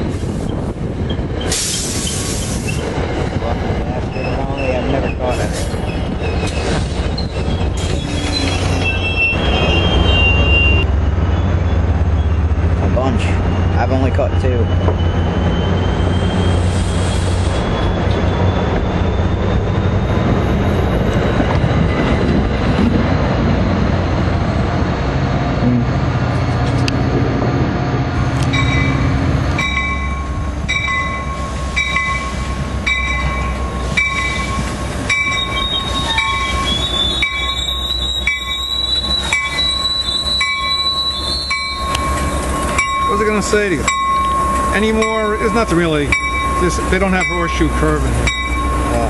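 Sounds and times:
train coaches rolling past: 0.0 - 49.0
high wheel squeal: 4.1 - 12.4, 13.0 - 22.0, 28.4 - 49.0.

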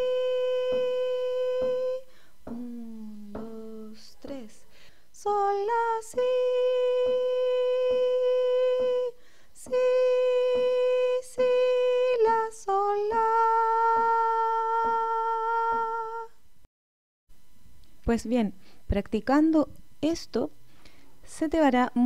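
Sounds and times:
woman singing solfege: 0.0 - 16.4, 21.2 - 22.0
soft ticking beat: 2.5 - 3.8.

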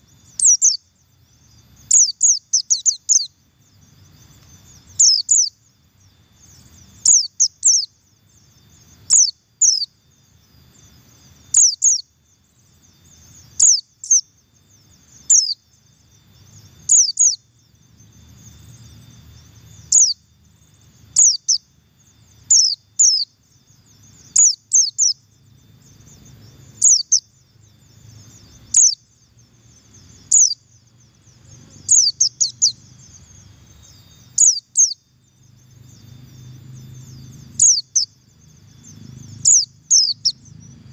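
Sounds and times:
bird high falling calls: 26.8 - 27.3, 31.6 - 35.0, 37.1 - 38.1.

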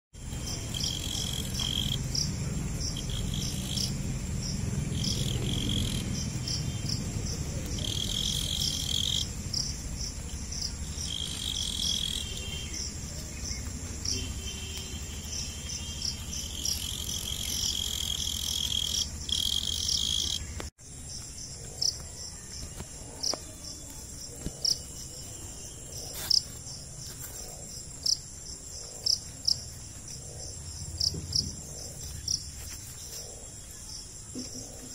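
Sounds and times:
buzzing insect trills: 0.2 - 23.7
crickets chirping: 0.2 - 34.9.

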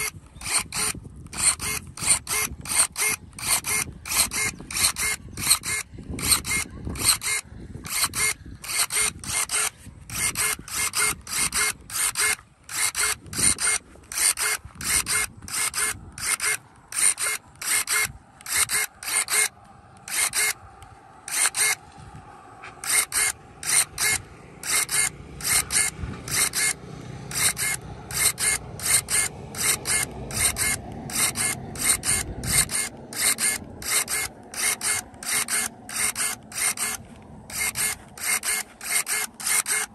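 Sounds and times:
electric pruning shears whirring: 0.0 - 39.9.

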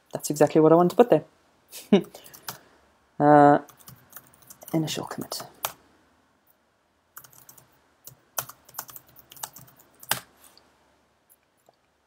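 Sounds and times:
computer keyboard typing: 2.2 - 2.6, 3.7 - 5.8, 7.2 - 10.3.

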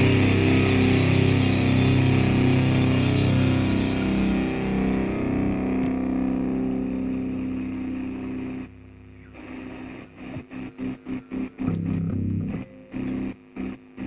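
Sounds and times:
electric guitar and bass riff: 0.0 - 14.0.

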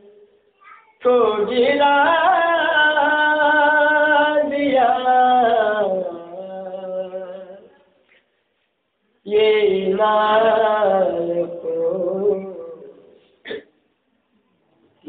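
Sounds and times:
man singing unaccompanied: 1.0 - 8.0, 9.2 - 13.2.

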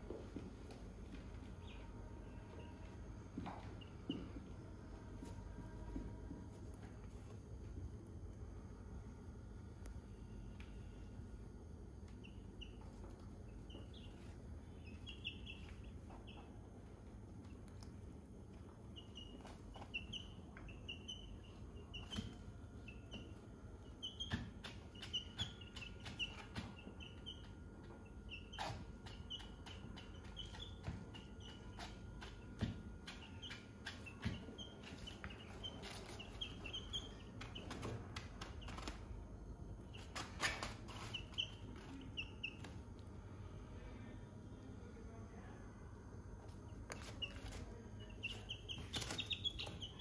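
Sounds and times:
chicks peeping: 1.2 - 5.4, 12.1 - 16.8, 18.8 - 39.0, 39.8 - 42.8, 46.9 - 50.0.

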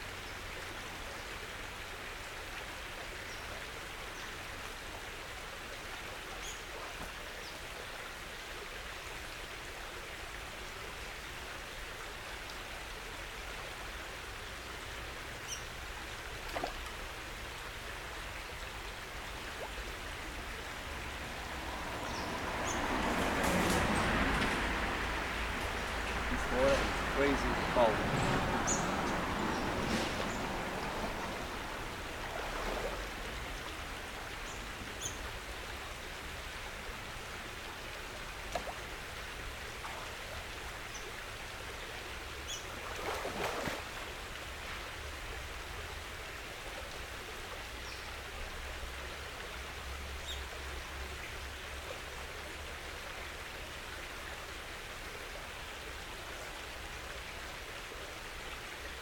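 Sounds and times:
steady outdoor hiss: 0.0 - 59.0
water sloshing from wading: 19.4 - 36.4, 42.6 - 44.7.

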